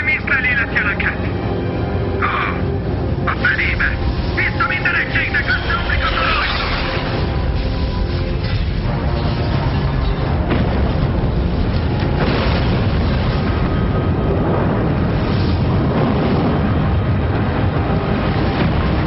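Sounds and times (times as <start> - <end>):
building collapsing roar: 2.1 - 19.0.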